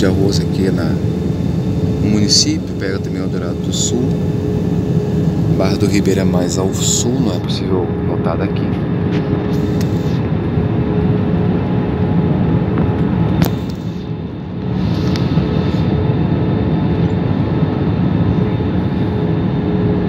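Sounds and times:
airliner cabin engine and airflow: 0.0 - 20.0
click: 9.8 - 10.0, 13.4 - 13.8.

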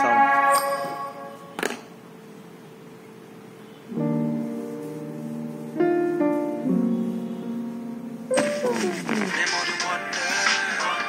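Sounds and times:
piano-like chords through speaker: 0.0 - 2.0, 3.3 - 11.0.

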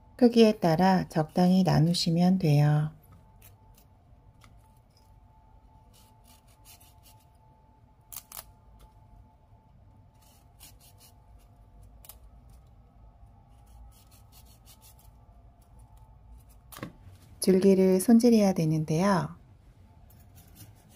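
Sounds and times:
knife cutting broccoli stems: 5.8 - 7.3, 10.2 - 12.7, 13.5 - 15.2.

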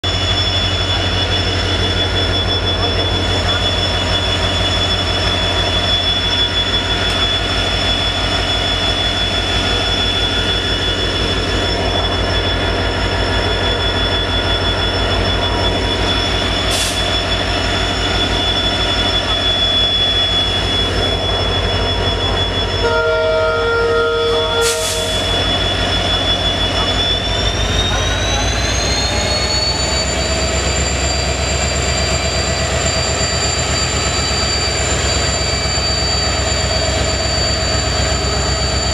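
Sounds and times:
diesel locomotive engine throbbing: 0.0 - 38.9
train horn: 22.8 - 25.2.

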